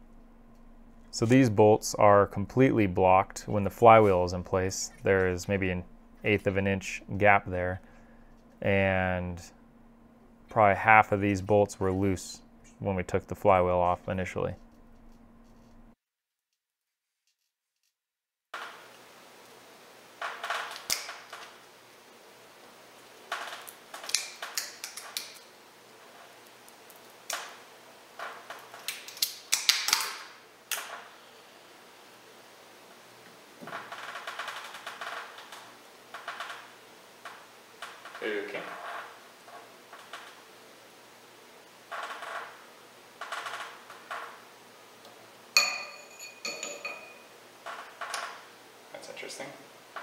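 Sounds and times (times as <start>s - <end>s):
metal clicking and clinking: 45.6s - 48.3s.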